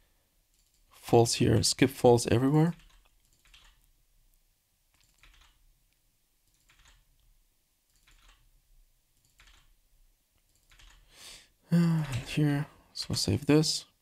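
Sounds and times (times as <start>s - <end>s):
faint keyboard typing: 0.5s - 1.8s, 2.6s - 8.5s, 9.1s - 11.1s, 13.0s - 13.4s.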